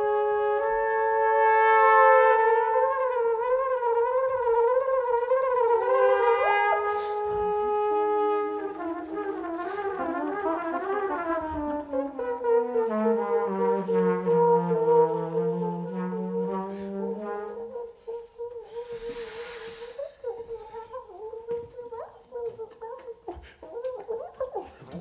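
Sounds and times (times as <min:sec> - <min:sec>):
trumpet playing long notes: 0:00.0 - 0:21.6
lower sliding tone: 0:18.6 - 0:21.3.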